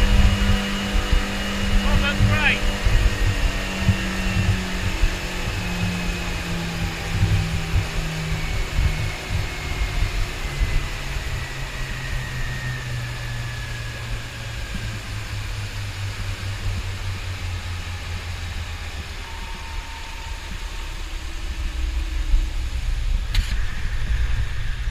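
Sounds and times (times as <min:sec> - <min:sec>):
outboard motors humming: 0:00.0 - 0:24.9
wind: 0:00.0 - 0:24.9.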